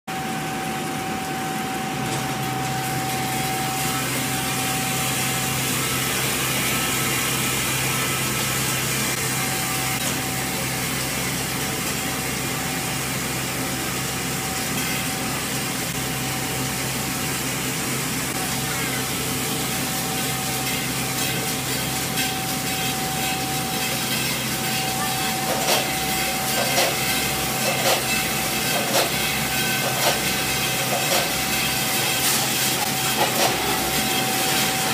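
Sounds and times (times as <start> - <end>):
machine hum: 0.1 - 34.9.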